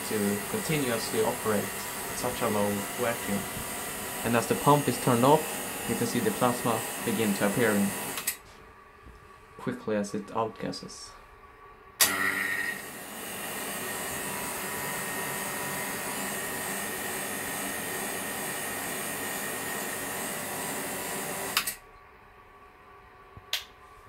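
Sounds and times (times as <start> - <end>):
vacuum pump hissing and humming: 0.0 - 8.6, 12.0 - 21.8.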